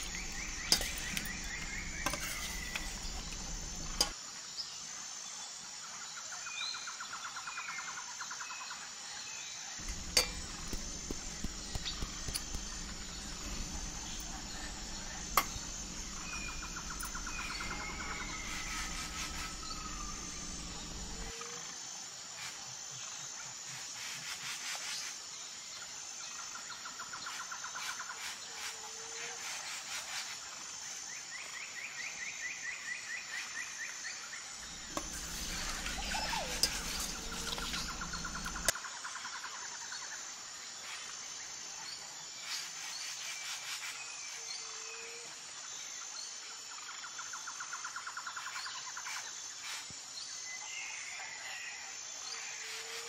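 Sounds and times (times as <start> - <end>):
birds trilling and chirping: 0.0 - 4.1, 9.8 - 21.3, 34.6 - 38.7
pulsing insect buzz: 9.8 - 21.7, 34.6 - 38.7.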